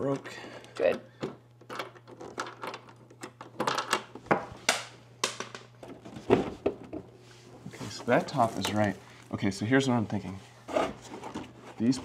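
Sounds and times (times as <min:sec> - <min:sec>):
scraping rustles: 0:07.3 - 0:09.0.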